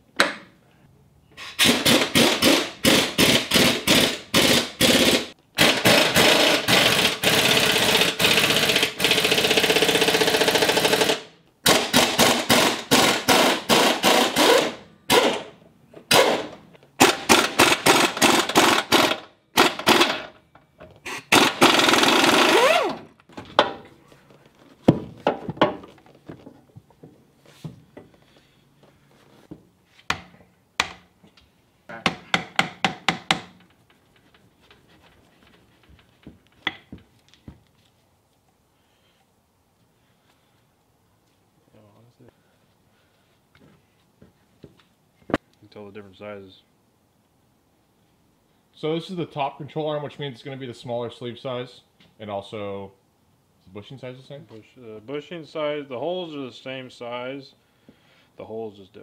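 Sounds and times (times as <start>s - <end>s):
impact wrench hammering: 1.6s - 20.4s, 21.1s - 23.8s, 31.9s - 33.7s.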